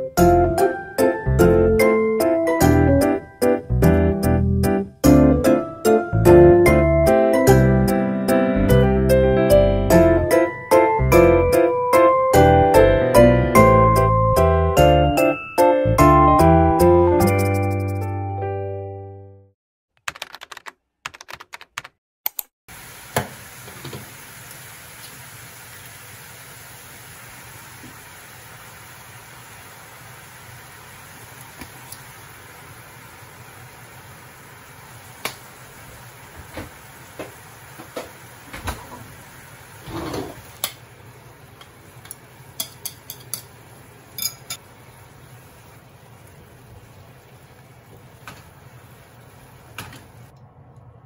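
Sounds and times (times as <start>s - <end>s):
music chord: 5.0s - 17.5s
steady hiss: 22.7s - 50.3s
utensils clicking and tapping: 41.6s - 44.6s.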